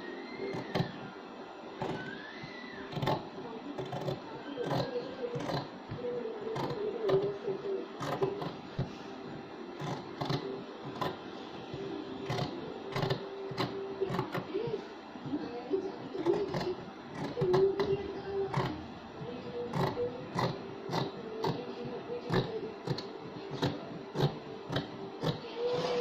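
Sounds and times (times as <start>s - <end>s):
scissors snipping cloth: 2.9s - 5.7s, 6.5s - 7.4s, 8.0s - 8.6s, 9.8s - 11.2s, 12.2s - 14.5s, 16.2s - 17.9s, 18.5s - 18.8s, 19.8s - 21.7s, 22.3s - 25.4s.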